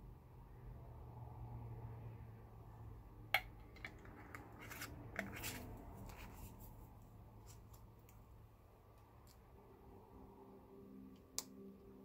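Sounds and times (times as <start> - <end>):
faint steady hum: 0.0 - 12.0
lid clicking and scraping on jar: 3.4 - 5.7.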